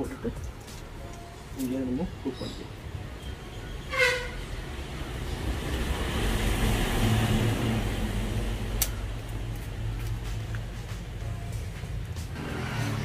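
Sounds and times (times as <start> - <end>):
vehicle passing by: 4.8 - 10.4, 12.3 - 13.0.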